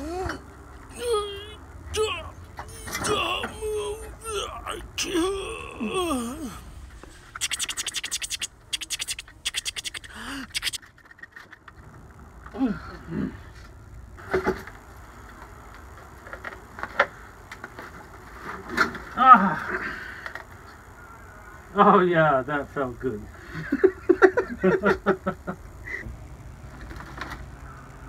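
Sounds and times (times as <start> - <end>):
men grunting with effort: 0.0 - 6.8
rapid rasping scrapes: 7.3 - 10.8.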